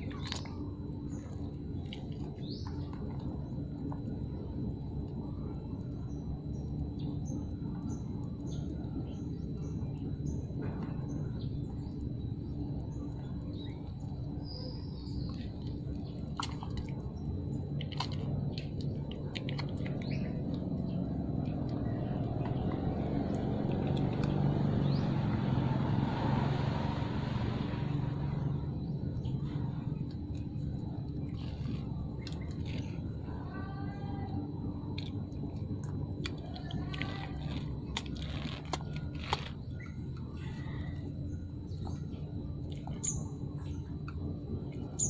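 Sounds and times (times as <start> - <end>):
low background hum: 0.0 - 45.0
faint bird chirps: 5.7 - 16.5, 38.2 - 44.0.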